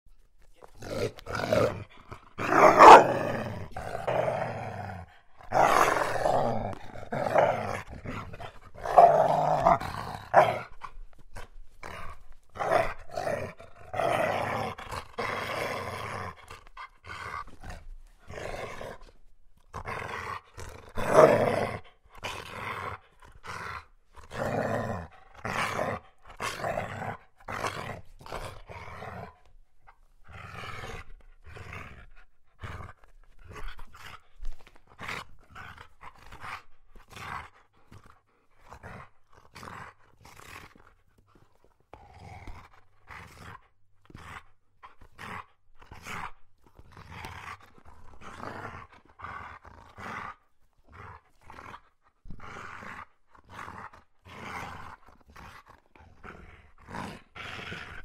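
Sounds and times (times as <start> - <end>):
dog growling: 0.6 - 58.0.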